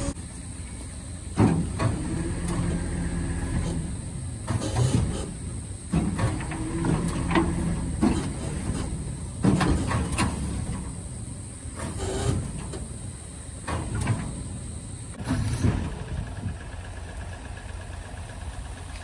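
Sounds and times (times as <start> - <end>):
truck engine running: 0.0 - 19.0
wooden skids scraping on steel: 1.4 - 11.1, 11.7 - 13.0.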